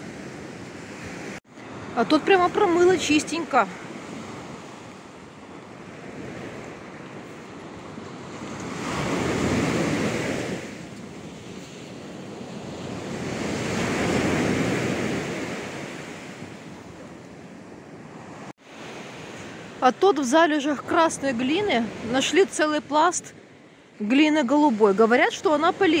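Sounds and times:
steady surf: 0:00.0 - 0:26.0
waves washing up a sandy beach: 0:00.0 - 0:26.0.

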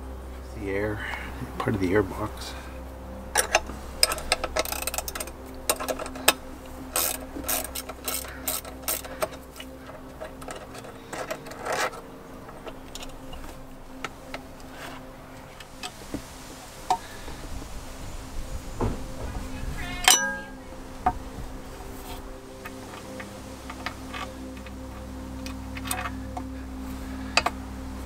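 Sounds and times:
wrench clicking on metal bolts: 0:07.0 - 0:12.0.

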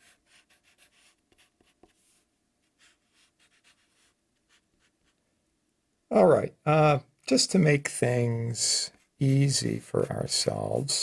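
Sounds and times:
marker scratching on paper: 0:00.0 - 0:05.2.

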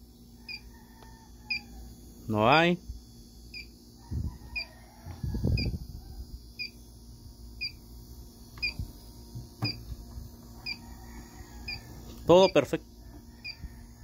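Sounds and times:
leak detector beeping: 0:00.4 - 0:00.7, 0:01.5 - 0:01.7, 0:02.4 - 0:03.8, 0:04.5 - 0:04.7, 0:05.5 - 0:05.8, 0:06.5 - 0:06.9, 0:07.5 - 0:10.0, 0:10.6 - 0:10.8, 0:11.6 - 0:12.8, 0:13.4 - 0:13.7.

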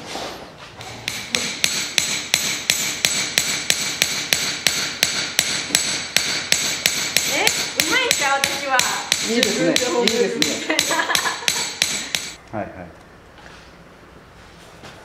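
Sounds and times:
hammer striking metal: 0:00.8 - 0:12.4.

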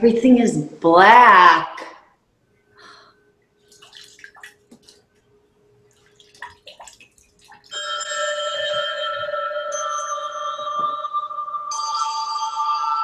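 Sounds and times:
water splashing and dripping: 0:03.6 - 0:07.9
ringing held chord: 0:07.7 - 0:13.0.

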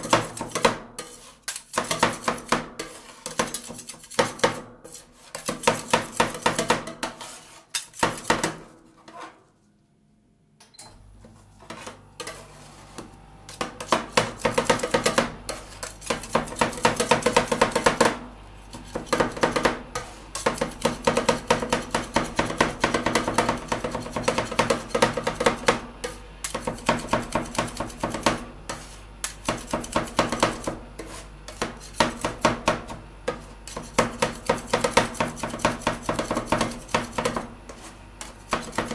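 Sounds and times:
metal spatulas chopping on steel plate: 0:00.0 - 0:09.4, 0:13.5 - 0:38.9.

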